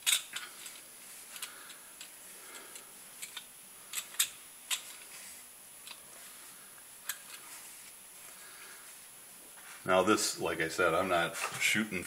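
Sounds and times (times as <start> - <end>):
cloth rubbing on metal: 7.4 - 9.9.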